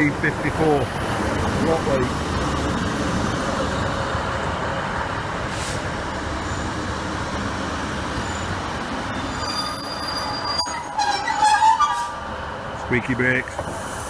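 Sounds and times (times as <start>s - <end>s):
train brakes squealing: 8.2s - 12.2s.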